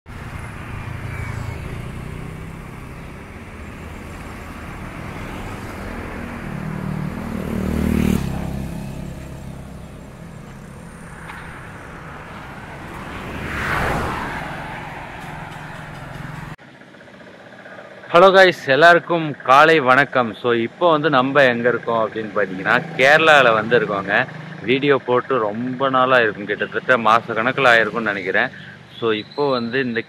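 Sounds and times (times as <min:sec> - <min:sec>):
road traffic hum: 0:00.0 - 0:30.0
vehicle passing close: 0:00.1 - 0:16.6.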